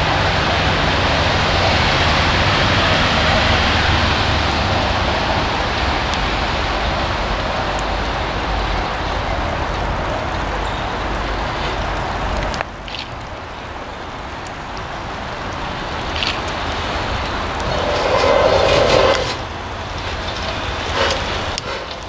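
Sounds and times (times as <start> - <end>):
train wheels on rails: 16.2 - 22.0
steam exhaust hissing: 17.2 - 22.0
wheel squeaks: 17.5 - 22.0.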